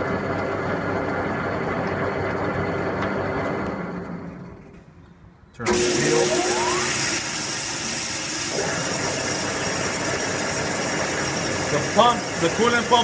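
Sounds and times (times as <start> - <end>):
grinder motor whining: 5.7 - 13.0.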